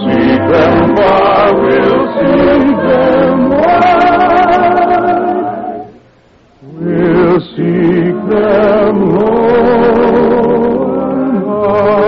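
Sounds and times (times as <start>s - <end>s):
operetta singing with vibrato: 0.0s - 6.0s, 6.6s - 12.0s
musical accompaniment: 0.0s - 12.0s.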